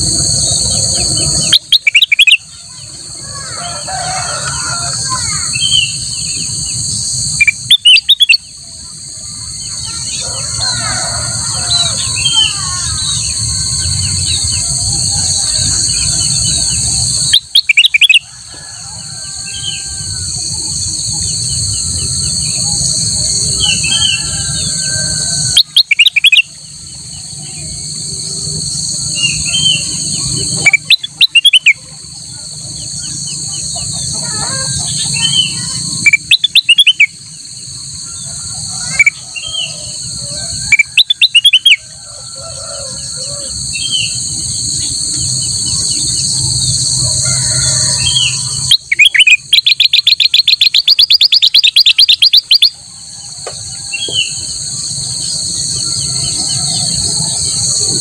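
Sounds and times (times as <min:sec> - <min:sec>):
bird singing rapid notes: 0:00.0 - 0:02.6, 0:05.4 - 0:08.6, 0:11.8 - 0:18.2, 0:25.3 - 0:26.8, 0:29.0 - 0:31.8, 0:34.8 - 0:37.2, 0:40.7 - 0:41.8, 0:48.0 - 0:52.8
high insect drone: 0:00.0 - 0:58.0.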